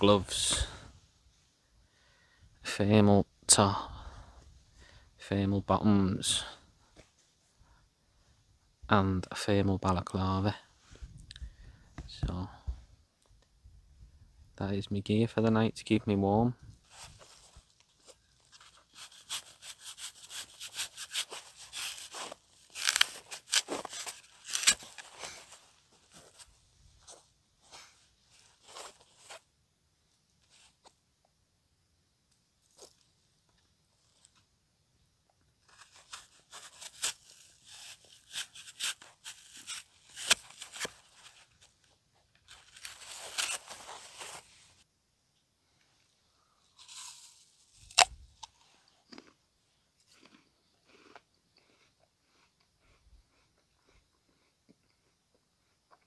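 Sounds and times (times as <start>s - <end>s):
crinkly material rustling and tearing: 16.9s - 29.4s, 35.6s - 41.8s, 42.4s - 44.8s.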